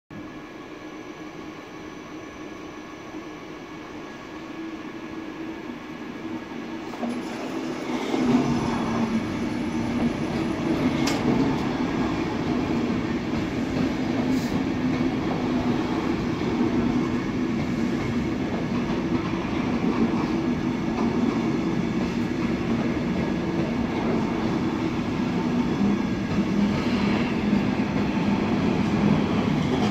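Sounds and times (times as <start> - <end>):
train wheels clickety-clack on rails: 6.7 - 29.9.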